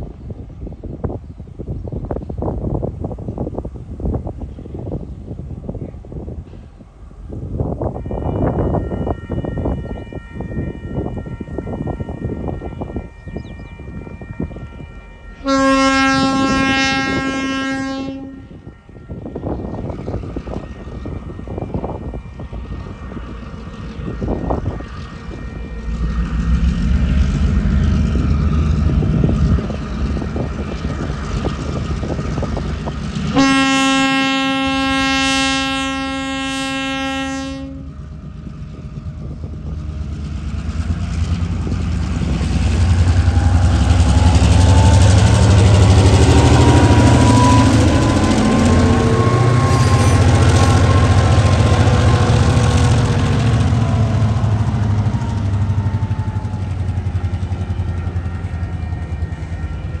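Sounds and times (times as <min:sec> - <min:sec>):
diesel locomotive engine running: 0:00.0 - 1:00.0
locomotive horn blast: 0:14.0 - 0:19.6, 0:33.3 - 0:37.9, 0:43.2 - 0:54.9.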